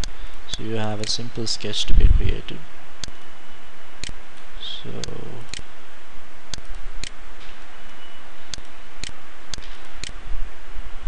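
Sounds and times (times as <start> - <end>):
computer mouse clicks: 0.0 - 1.2
steady background hiss: 0.0 - 11.0.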